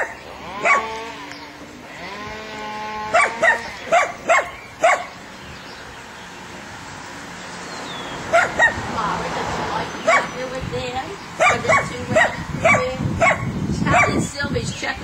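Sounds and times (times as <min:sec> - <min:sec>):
dog barking: 0:00.0 - 0:00.9, 0:03.1 - 0:05.2, 0:08.3 - 0:08.8, 0:10.0 - 0:10.4, 0:11.4 - 0:14.2
dog whining: 0:03.1 - 0:05.1.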